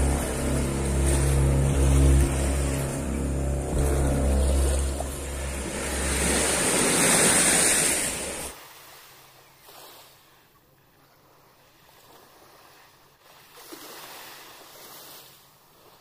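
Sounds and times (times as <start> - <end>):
loud rushing noise: 0.0 - 8.5
faint waves washing on shore: 0.0 - 16.0.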